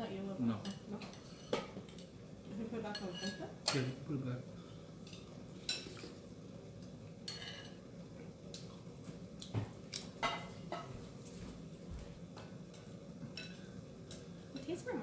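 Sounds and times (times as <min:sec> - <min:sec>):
tableware clinking: 0:02.9 - 0:04.0, 0:07.2 - 0:07.8, 0:10.2 - 0:11.0, 0:12.7 - 0:13.7.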